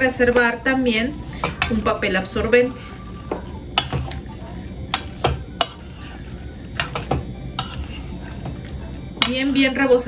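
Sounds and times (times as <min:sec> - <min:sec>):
metal spoon clinking on a bowl: 0:01.4 - 0:01.9, 0:03.8 - 0:04.2, 0:04.9 - 0:06.0, 0:06.8 - 0:08.0.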